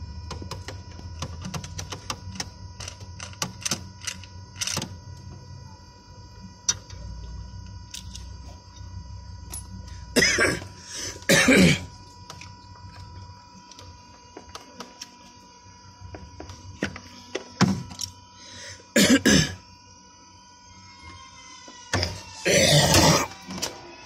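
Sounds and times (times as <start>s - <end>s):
person coughing: 10.1s - 11.9s, 18.9s - 19.6s, 22.5s - 23.3s.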